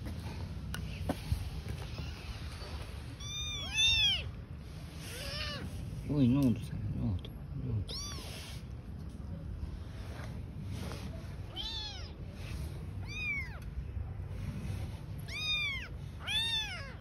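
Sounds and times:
low background rumble: 0.0 - 17.0
kitten meowing: 3.2 - 4.3, 5.1 - 5.7, 7.8 - 8.4, 11.5 - 12.2, 13.0 - 13.6, 15.2 - 17.0.

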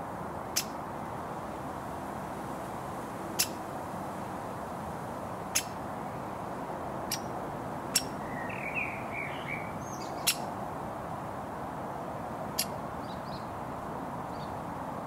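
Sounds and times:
woodpecker sharp calls: 3.4 - 3.6, 5.5 - 5.8, 7.1 - 7.3, 7.9 - 10.5.

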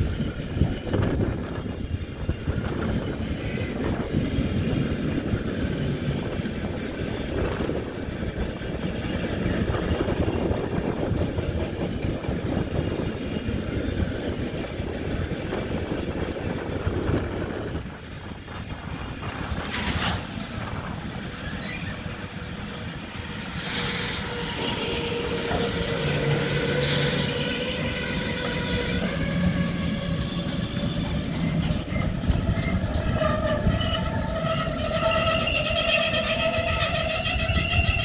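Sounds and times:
train wheels rumbling on rail: 0.0 - 38.0
high wheel squealing: 21.4 - 38.0.

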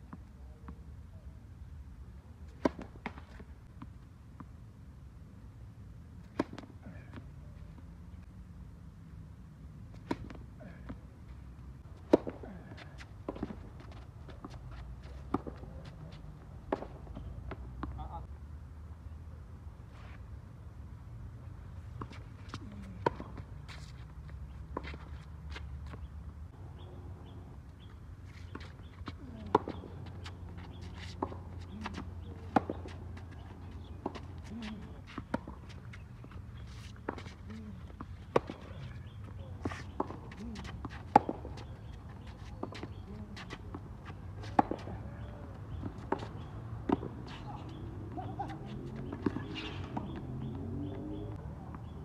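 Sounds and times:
tennis ball hits and bounces: 2.6 - 4.5, 6.2 - 7.9, 9.9 - 11.1, 12.0 - 18.0, 22.0 - 24.0, 28.3 - 52.0
tennis ball struck by rackets: 44.4 - 45.0.

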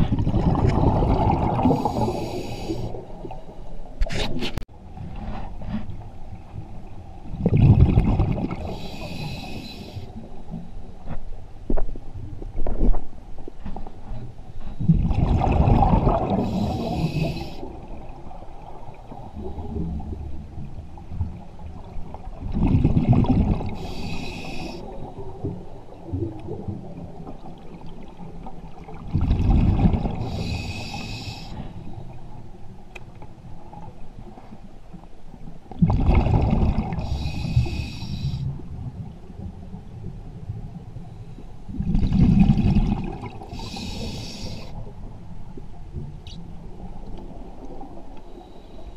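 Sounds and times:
exhaled bubbles rumbling underwater: 0.0 - 4.0, 4.8 - 48.5
regulator hissing on inhale: 1.8 - 3.1, 8.6 - 10.2, 16.4 - 17.8, 23.7 - 25.2, 30.2 - 32.0, 37.0 - 38.5, 43.5 - 44.8.

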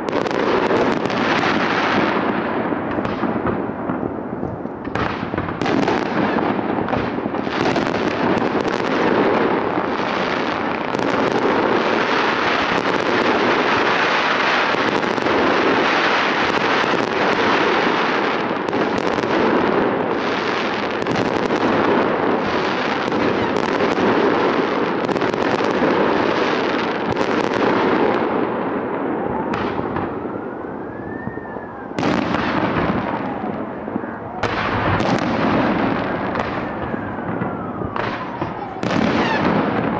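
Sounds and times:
fireworks bangs and crackles: 0.0 - 39.9
firework whistle: 29.0 - 39.9.

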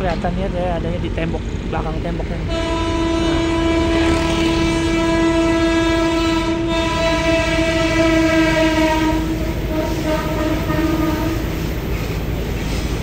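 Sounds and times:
train horn blast: 2.4 - 11.7.

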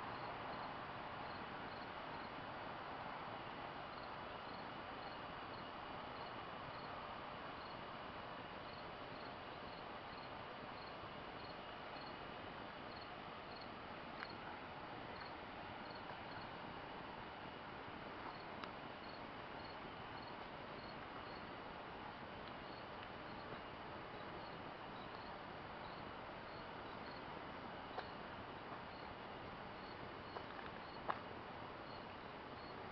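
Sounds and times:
low background hiss: 0.0 - 32.9
insect chirping: 0.1 - 2.4, 3.9 - 7.0, 7.6 - 7.8, 8.6 - 12.2, 12.9 - 14.5, 15.1 - 16.6, 18.2 - 21.5, 22.6 - 28.2, 28.9 - 29.2, 29.8 - 31.2, 31.8 - 32.8.

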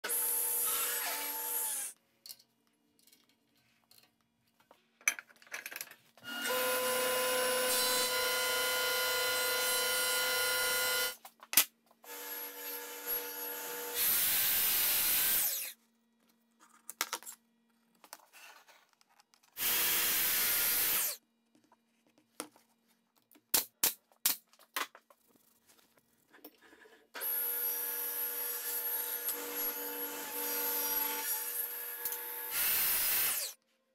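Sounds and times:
table saw cutting: 0.0 - 2.0, 6.3 - 11.2, 12.1 - 15.8, 19.6 - 21.2, 27.2 - 33.6.

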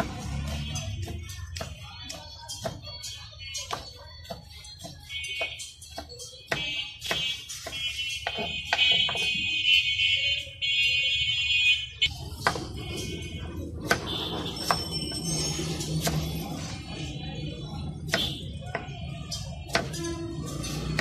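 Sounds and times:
knife chopping on wooden board: 3.7 - 9.3, 13.8 - 14.9.

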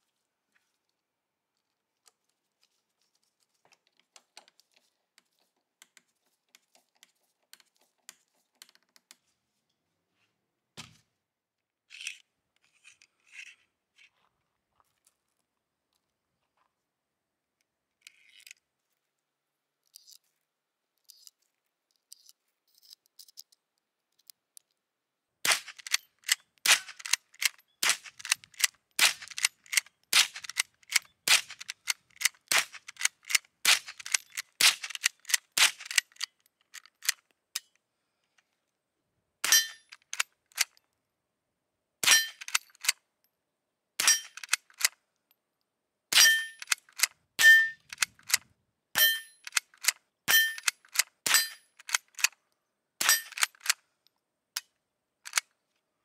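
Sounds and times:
cartridges clicking into magazine: 25.5 - 37.7, 42.0 - 43.0, 44.0 - 45.0, 46.1 - 48.4, 49.4 - 52.4, 53.0 - 53.8, 55.3 - 55.5
rifle shots cracking: 26.6 - 27.1, 29.0 - 29.4.

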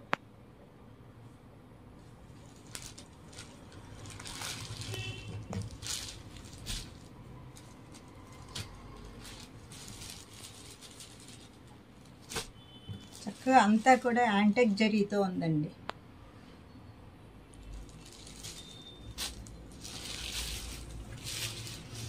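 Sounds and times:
fabric rustling: 2.0 - 14.4, 17.7 - 22.0.

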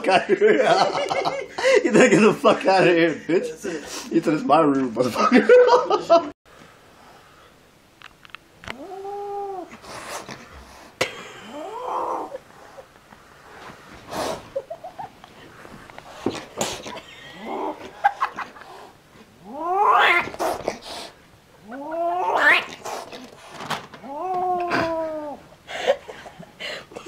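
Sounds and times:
kitten yowling: 8.7 - 9.7, 19.4 - 20.4, 21.6 - 22.8, 24.0 - 25.4.

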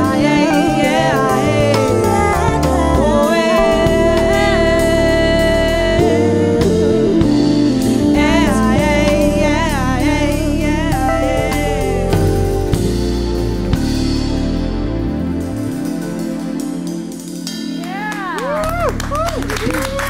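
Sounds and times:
woman singing: 0.0 - 12.4
bass guitar: 0.0 - 20.0
drums: 0.0 - 20.0
keyboard: 0.0 - 20.0.

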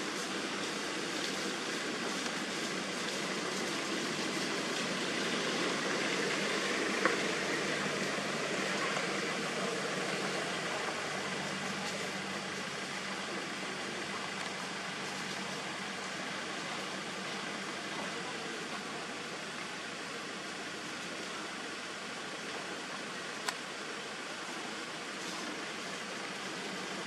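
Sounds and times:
steady background hiss: 0.0 - 27.0.

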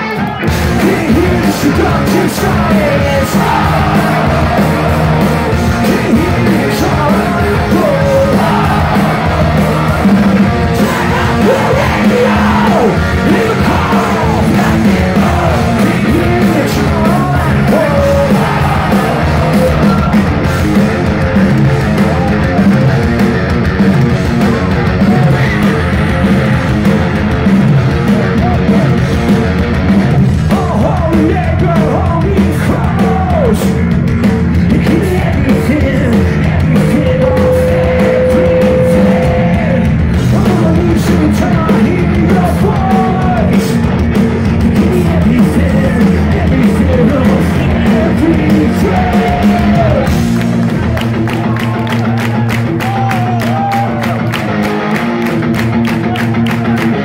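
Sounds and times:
person singing: 0.0 - 20.3, 30.4 - 33.8, 34.7 - 50.2
punk rock band playing live: 0.0 - 57.0.

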